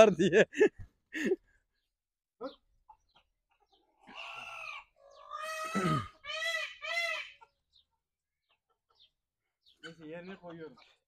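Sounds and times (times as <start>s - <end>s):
rooster squawking: 4.0s - 7.5s.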